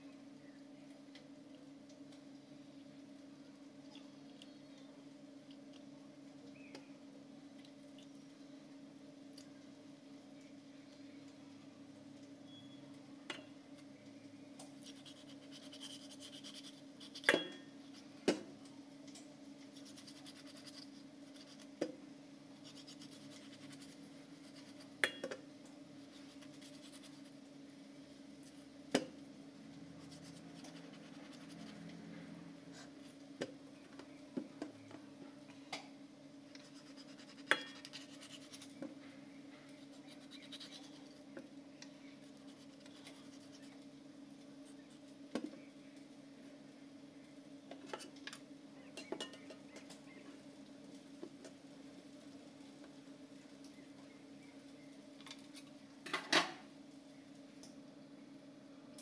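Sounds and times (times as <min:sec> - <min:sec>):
steady low hum: 0:00.0 - 0:59.0
knife scraping fish: 0:14.8 - 0:18.1, 0:19.7 - 0:21.7, 0:22.6 - 0:24.9, 0:26.1 - 0:27.3, 0:30.0 - 0:31.7, 0:36.6 - 0:38.8, 0:39.8 - 0:41.1.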